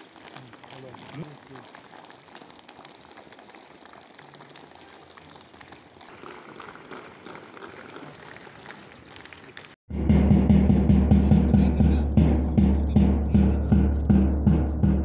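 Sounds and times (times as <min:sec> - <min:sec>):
small crackling ticks: 0:00.0 - 0:09.7.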